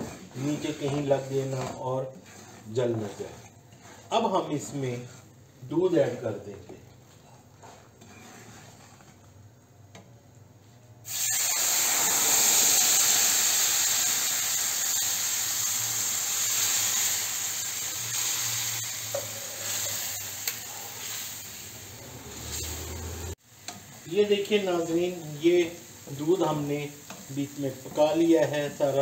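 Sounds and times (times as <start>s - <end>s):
wooden spatula stirring: 0.0s - 10.8s, 25.6s - 29.0s
milk sizzling in hot pan: 11.0s - 29.0s.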